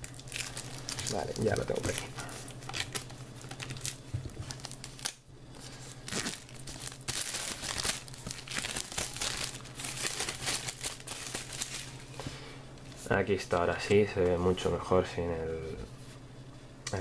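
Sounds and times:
plastic shrink-wrap crinkling: 0:00.0 - 0:12.2.

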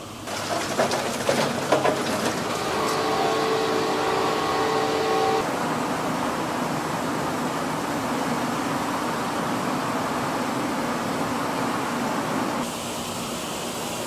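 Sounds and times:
ventilation hiss: 0:00.0 - 0:14.0
metal clanks and rattles: 0:00.3 - 0:03.0
steady whine: 0:02.4 - 0:05.6.

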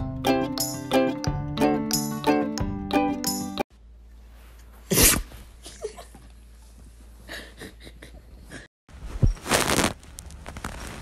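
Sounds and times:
dog sneezing: 0:04.8 - 0:05.4
faint rustling: 0:08.9 - 0:11.0.

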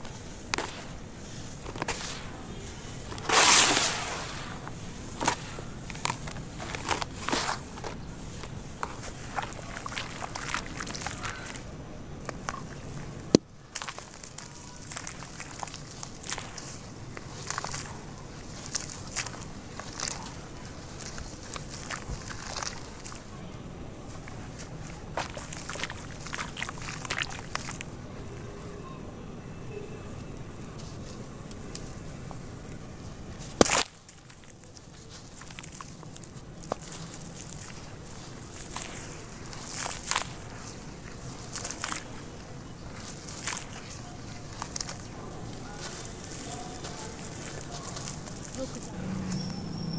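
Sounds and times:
loud crunch: 0:00.0 - 0:11.7, 0:12.3 - 0:23.3, 0:24.1 - 0:27.9, 0:33.4 - 0:49.7
dry clay crumbling: 0:00.0 - 0:28.1, 0:30.5 - 0:49.5
crumbs falling into water: 0:05.2 - 0:23.3, 0:24.1 - 0:27.9, 0:33.4 - 0:45.1.

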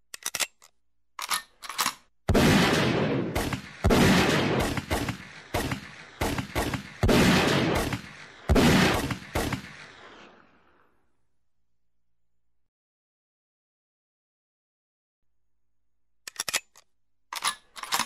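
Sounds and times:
gunshots echoing: 0:02.3 - 0:10.6.

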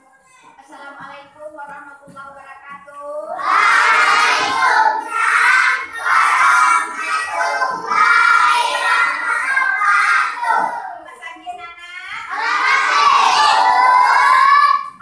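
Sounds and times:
children singing in unison: 0:03.4 - 0:10.9, 0:12.3 - 0:15.0.

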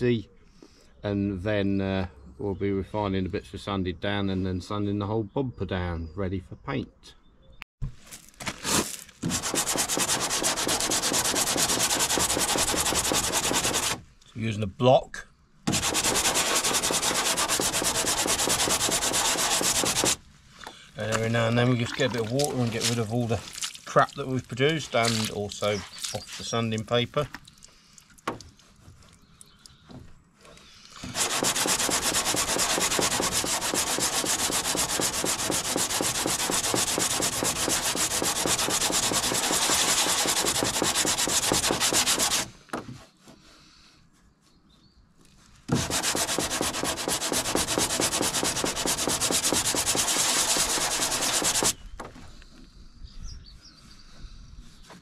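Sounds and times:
hand sanding strokes: 0:08.6 - 0:14.0, 0:15.7 - 0:20.3, 0:30.8 - 0:44.5, 0:45.7 - 0:51.8.

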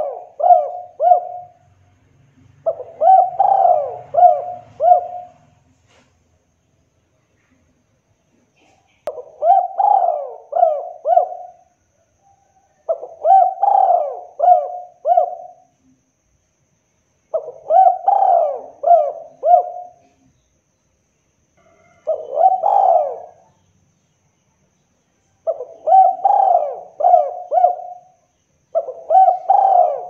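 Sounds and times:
dove cooing: 0:00.0 - 0:01.7, 0:02.6 - 0:05.7, 0:08.6 - 0:15.7, 0:17.3 - 0:20.3, 0:21.6 - 0:23.6, 0:25.4 - 0:30.0.

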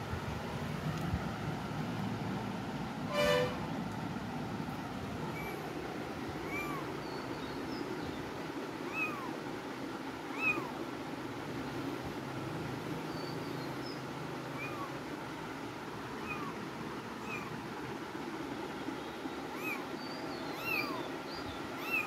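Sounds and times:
low background noise: 0:00.0 - 0:22.0
kittens mewing: 0:05.3 - 0:05.7, 0:06.4 - 0:07.0, 0:08.8 - 0:09.4, 0:10.2 - 0:10.8, 0:14.5 - 0:15.1, 0:16.0 - 0:17.6, 0:19.5 - 0:21.0, 0:21.8 - 0:22.0.

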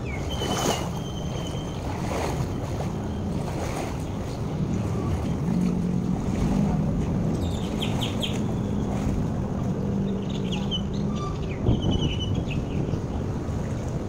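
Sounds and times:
wind rumble on microphone: 0:00.0 - 0:14.0
small birds chirping: 0:07.4 - 0:09.0.

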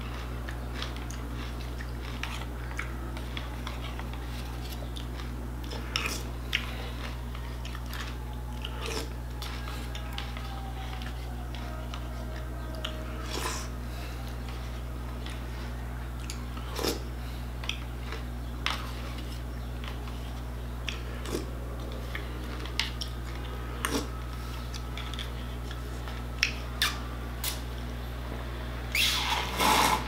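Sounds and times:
chewing cereal: 0:00.0 - 0:27.9
low hum: 0:00.0 - 0:30.0.

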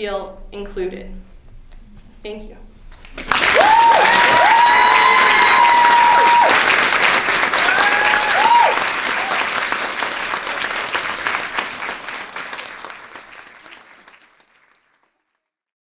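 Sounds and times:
audience applauding: 0:03.0 - 0:15.4
audience cheering: 0:03.2 - 0:14.4.

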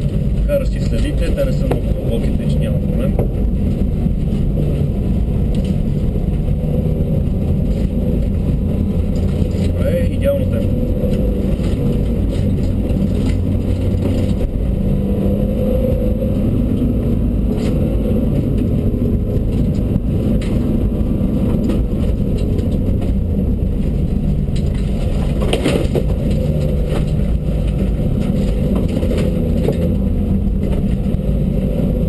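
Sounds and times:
car engine at low revs: 0:00.0 - 0:32.0
tyre and suspension rumble: 0:00.0 - 0:32.0.

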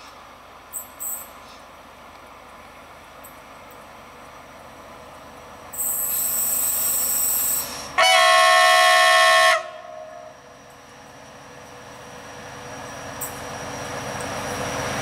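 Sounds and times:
locomotive running noise: 0:00.0 - 0:15.0
locomotive horn blasts: 0:08.0 - 0:10.4.

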